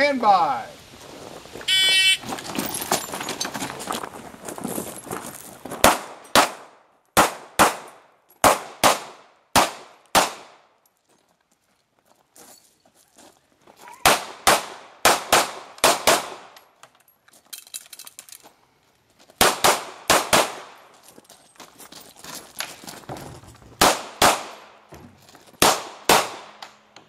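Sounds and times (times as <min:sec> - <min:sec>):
pistol shots with echo: 0:05.8 - 0:10.6, 0:14.0 - 0:16.5, 0:19.4 - 0:20.8, 0:23.8 - 0:24.7, 0:25.6 - 0:26.6.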